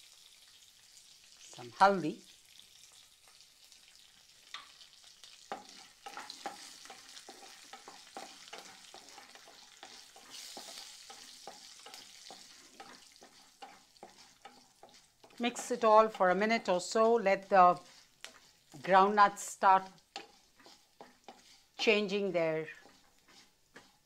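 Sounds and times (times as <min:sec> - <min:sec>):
hot oil sizzling: 0:00.0 - 0:24.0
wooden spatula scraping pan: 0:05.5 - 0:24.0.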